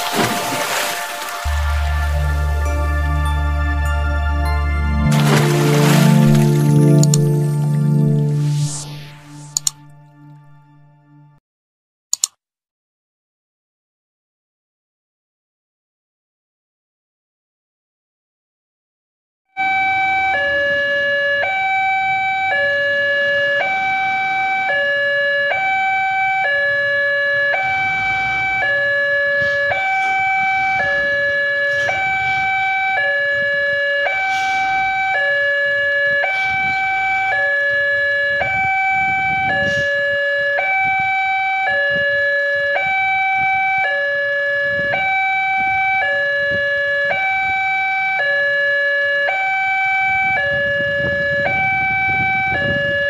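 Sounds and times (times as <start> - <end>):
level crossing two-tone alarm: 0.0 - 11.4, 19.6 - 53.0.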